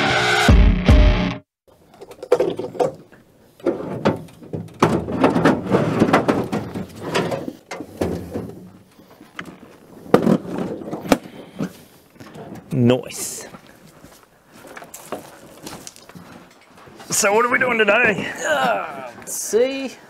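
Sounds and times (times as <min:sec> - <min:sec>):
metal box knocks and scrapes: 0:03.6 - 0:08.7.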